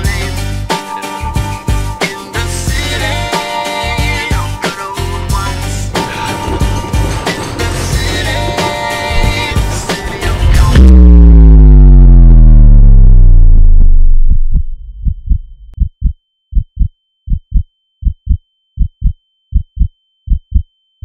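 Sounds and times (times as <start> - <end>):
music: 0.0 - 11.6
deep tone sliding down in pitch: 10.4 - 15.8
heartbeat sound effect: 13.6 - 20.7.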